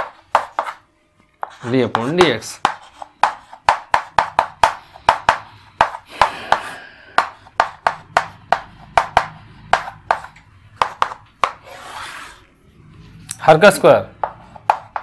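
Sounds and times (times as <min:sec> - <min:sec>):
chalk scratching scrape: 0:00.0 - 0:00.8, 0:01.4 - 0:13.2, 0:14.2 - 0:15.0
chalk tapping on chalkboard: 0:00.0 - 0:12.3, 0:14.1 - 0:15.0.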